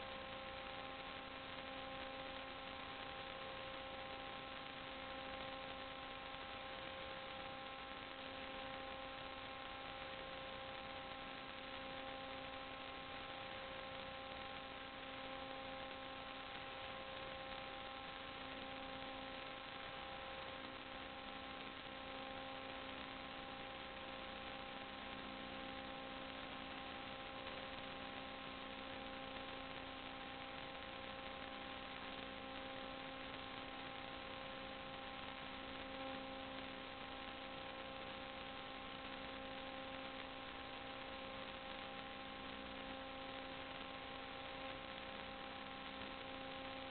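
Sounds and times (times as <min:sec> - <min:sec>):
electrical hum and hiss: 0:00.0 - 0:46.9.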